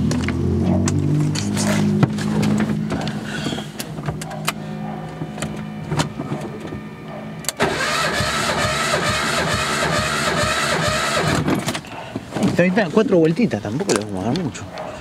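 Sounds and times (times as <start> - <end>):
engine cranking on starter motor: 7.5 - 11.8.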